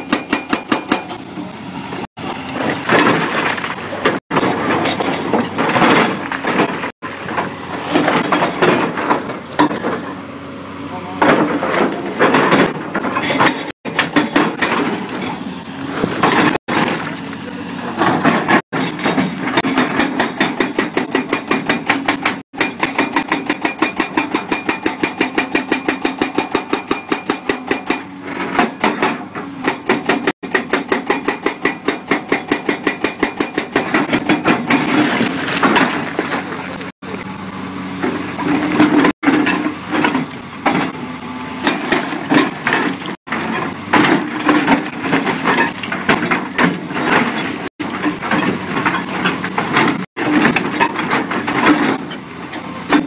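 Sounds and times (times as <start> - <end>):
hydraulic breaker hammering: 0.0 - 1.4, 11.2 - 15.1, 18.0 - 36.6
excavator engine running: 0.0 - 53.0.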